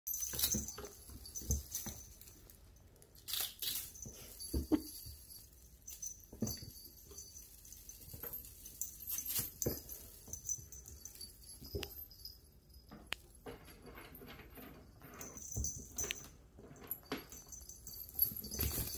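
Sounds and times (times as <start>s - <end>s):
small collar bell jingling: 0.1s - 18.9s
kittens thumping on tile floor: 4.0s - 5.1s.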